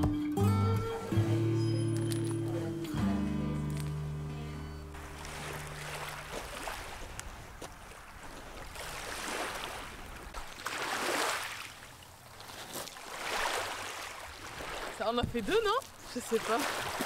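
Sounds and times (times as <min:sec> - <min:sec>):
waves lapping on pebble shore: 0:05.0 - 0:17.0.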